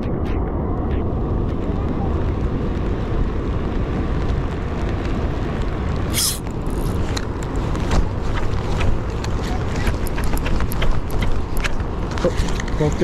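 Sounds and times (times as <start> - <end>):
wind buffeting microphone: 0.0 - 13.0
hiss-like rustle: 5.0 - 13.0.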